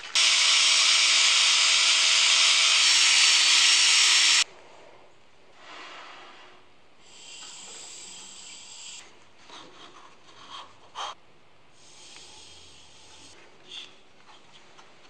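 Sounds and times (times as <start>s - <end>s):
wood lathe hissing: 0.0s - 4.4s.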